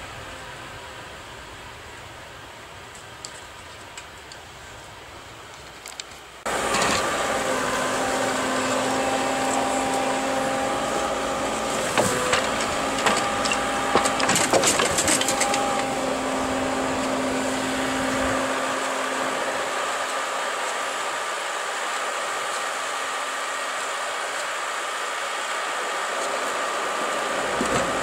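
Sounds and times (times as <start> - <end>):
forestry machine running: 0.0 - 28.0
logs knocking and clattering: 11.9 - 15.7.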